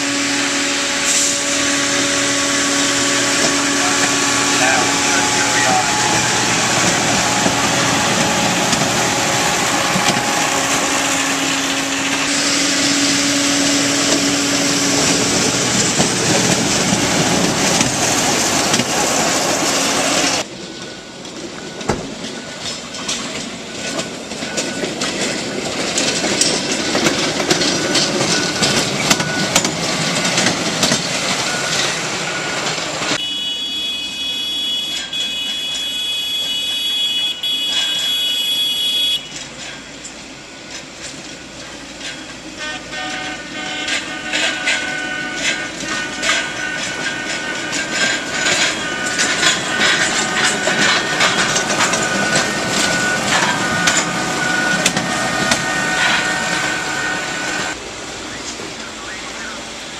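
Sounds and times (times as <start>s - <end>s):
diesel engine rolling past: 0.0s - 33.2s
wheels clicking on rails: 1.1s - 33.3s, 34.4s - 59.9s.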